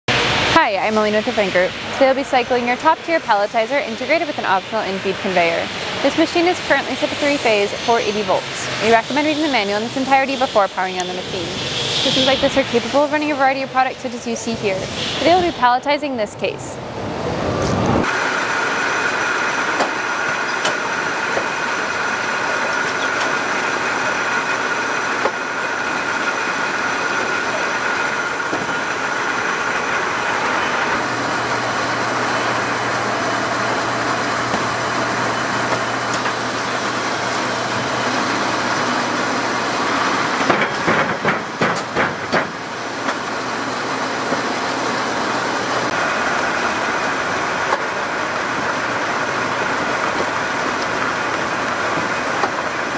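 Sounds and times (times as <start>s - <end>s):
machine hum with high tone: 0.1s - 52.9s
lower motor hum: 16.8s - 40.7s, 42.3s - 52.9s
sharp knocks: 40.4s - 43.2s.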